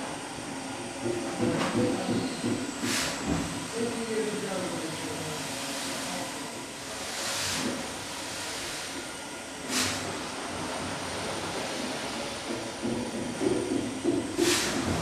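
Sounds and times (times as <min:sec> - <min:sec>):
steam engine clatter: 0:01.0 - 0:03.7, 0:09.7 - 0:15.0
steam hiss: 0:02.0 - 0:12.8, 0:14.3 - 0:15.0
heavy mechanical knocking: 0:12.4 - 0:15.0.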